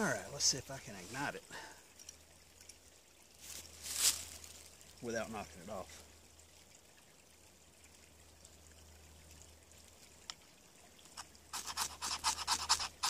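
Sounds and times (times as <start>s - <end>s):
knife scraping ferrocerium rod: 11.6s - 13.0s.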